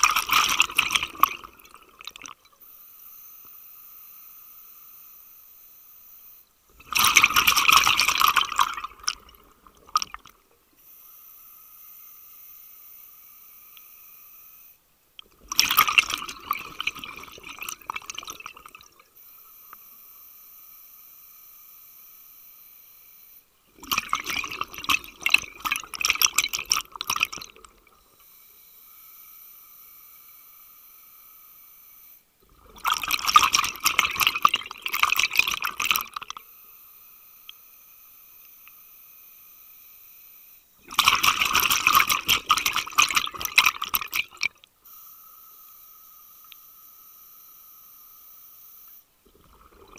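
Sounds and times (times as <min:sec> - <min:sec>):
exhaust bubbles bursting underwater: 0:00.0 - 0:02.3, 0:06.8 - 0:10.2, 0:15.4 - 0:18.8, 0:23.8 - 0:27.7.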